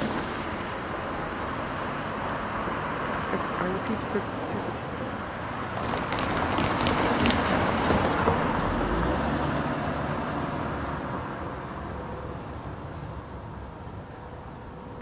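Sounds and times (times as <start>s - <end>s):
car tyre noise passing: 0.0s - 15.0s.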